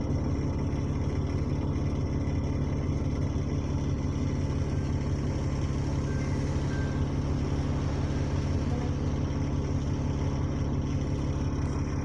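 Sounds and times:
bus diesel engine idling: 0.0s - 12.0s.

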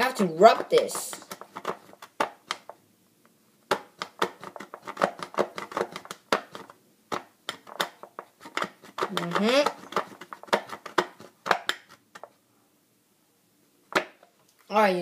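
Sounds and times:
knife scraping plastic bottle: 0.6s - 2.4s, 3.7s - 6.7s, 7.6s - 12.2s.

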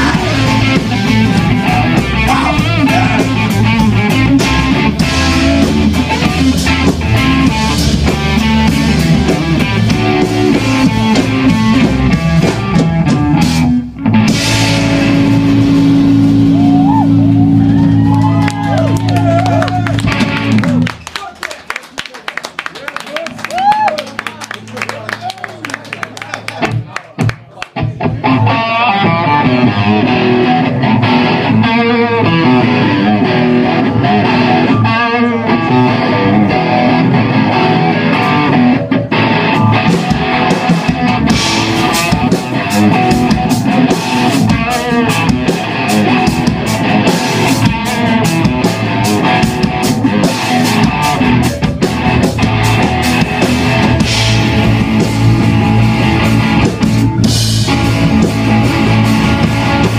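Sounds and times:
live rock band playing: 0.0s - 21.7s, 23.2s - 59.9s.

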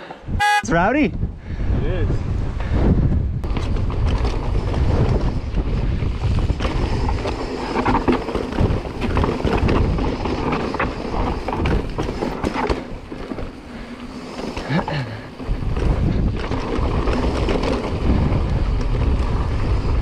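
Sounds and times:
wind buffeting microphone: 0.2s - 20.0s
bike rattling over rocks: 3.4s - 20.0s.

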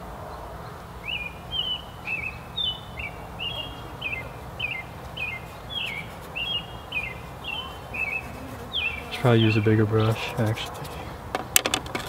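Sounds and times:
songbird whistling: 1.0s - 9.6s.

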